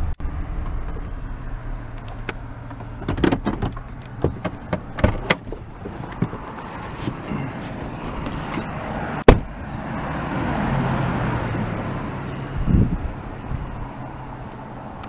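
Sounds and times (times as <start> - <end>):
engine humming: 0.0 - 15.0
road noise: 0.0 - 15.0
vehicle door slamming: 2.0 - 9.6.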